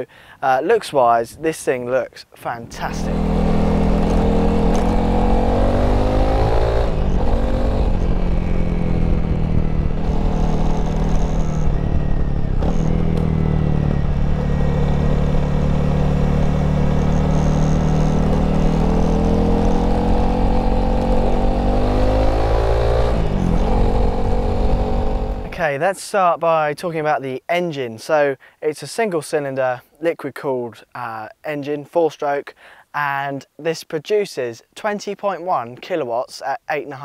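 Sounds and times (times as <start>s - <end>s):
motorcycle engine revving: 2.9s - 25.6s.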